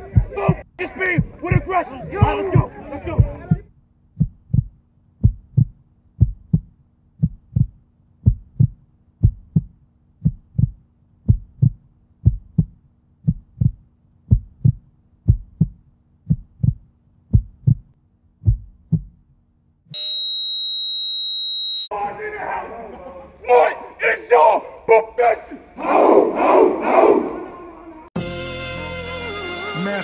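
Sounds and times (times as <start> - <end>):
heartbeat thumps: 0.0 - 19.3.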